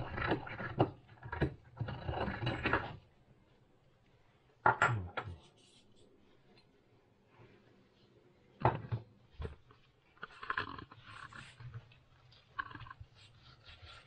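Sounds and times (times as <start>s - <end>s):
mortar and pestle grinding: 0.0s - 3.0s.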